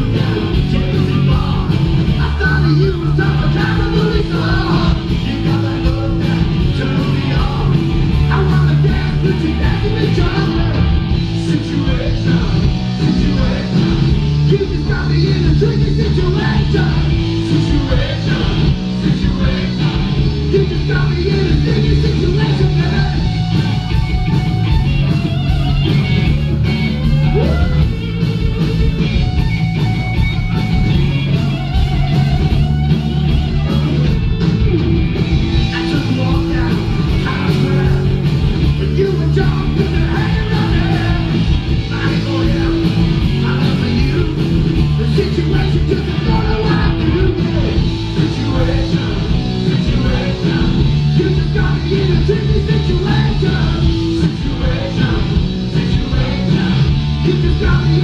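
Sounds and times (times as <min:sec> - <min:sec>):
person singing: 0:00.0 - 0:23.2, 0:35.6 - 0:58.0
distorted electric guitars: 0:00.0 - 0:58.0
drums: 0:00.0 - 0:58.0.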